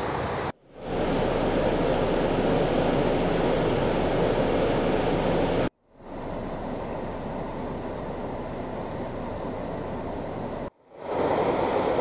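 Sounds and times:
fast-flowing creek rushing: 0.0 - 5.7
quieter steady noise: 0.5 - 12.0.

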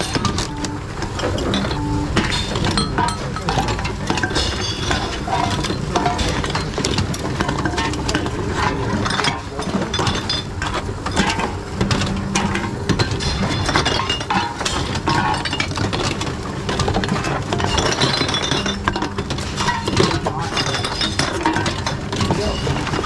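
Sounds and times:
bottles and cans clinking: 0.0 - 23.0
intake motor humming: 11.6 - 14.0.

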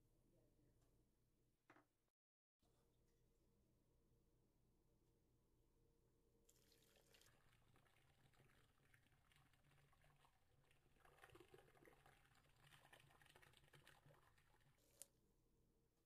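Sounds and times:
water trickling into a jar: 6.5 - 14.8.

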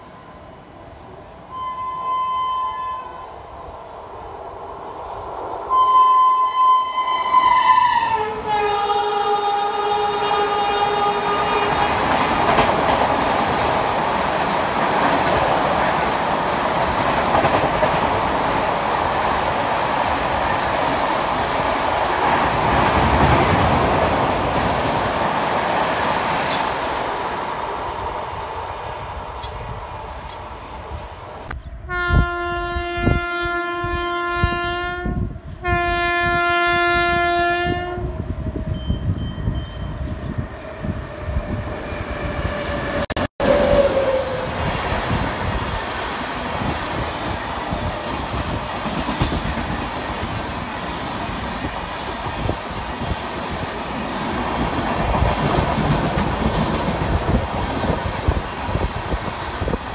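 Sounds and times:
freight train rumbling past: 0.0 - 59.9
locomotive air horn blasts: 1.5 - 3.3, 5.7 - 11.9, 31.8 - 38.2
train wheels clacking over rail joints: 47.8 - 50.4, 54.6 - 58.4.

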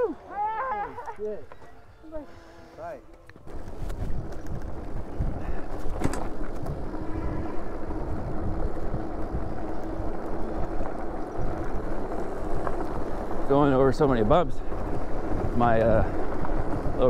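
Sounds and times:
wind rushing over microphone: 3.4 - 17.0.

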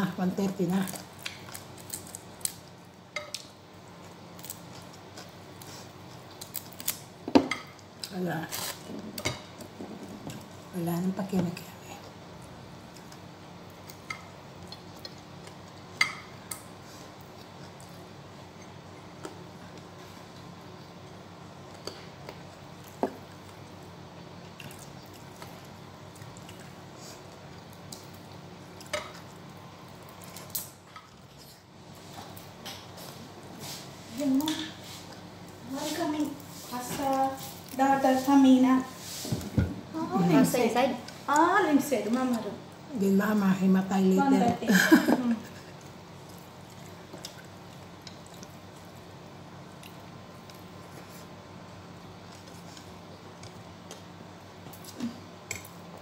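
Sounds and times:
chewing and squishing food: 0.7 - 10.7, 11.7 - 33.9, 45.5 - 56.0.

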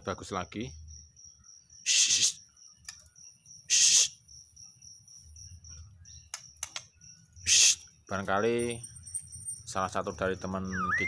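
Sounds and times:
insect trill: 0.0 - 11.0
bird rasping calls: 7.4 - 7.9.

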